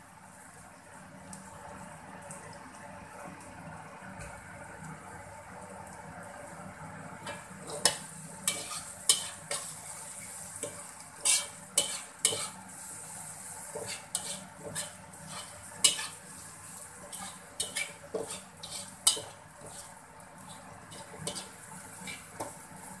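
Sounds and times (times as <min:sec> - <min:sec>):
food sizzling in oil: 0:00.0 - 0:23.0
spatula scraping and clanking wok: 0:07.2 - 0:23.0.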